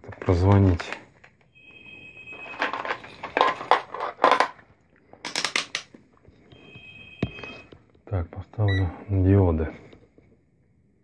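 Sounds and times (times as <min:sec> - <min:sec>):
multimeter beeping: 0:01.5 - 0:02.8, 0:06.5 - 0:07.8.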